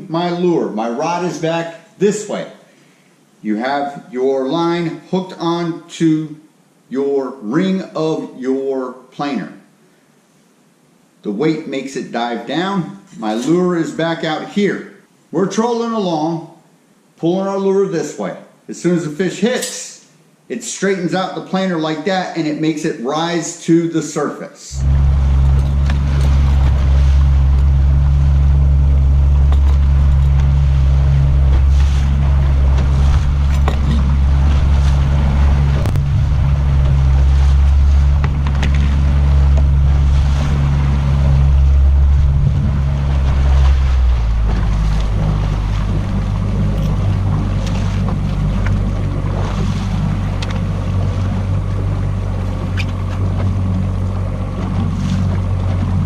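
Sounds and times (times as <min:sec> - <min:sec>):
wind: 0:00.0 - 0:56.0
choppy water: 0:24.8 - 0:56.0
outboard motor running: 0:24.8 - 0:56.0.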